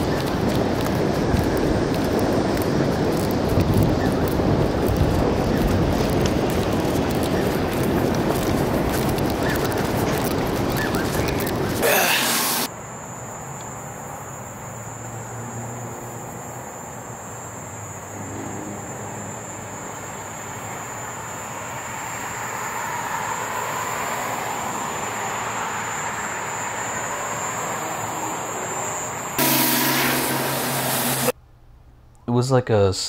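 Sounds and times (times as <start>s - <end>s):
loud burst of noise: 11.8s - 12.7s, 29.4s - 31.4s
distant vehicle noise: 12.4s - 32.0s
constant high whine: 16.6s - 32.2s.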